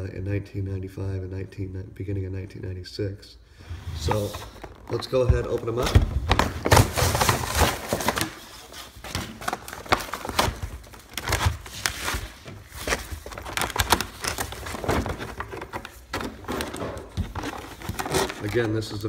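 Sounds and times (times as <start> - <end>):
plastic packaging crinkling: 4.1 - 19.0.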